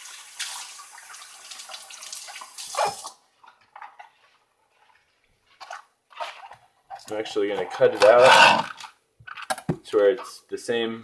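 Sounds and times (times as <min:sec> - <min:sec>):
kitchen tap running: 0:00.0 - 0:03.0.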